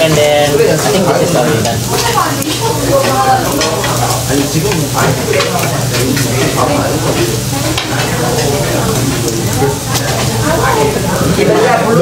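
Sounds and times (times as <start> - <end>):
meat sizzling on a grill: 0.0 - 12.0
metal tongs clicking on grill: 1.6 - 10.6.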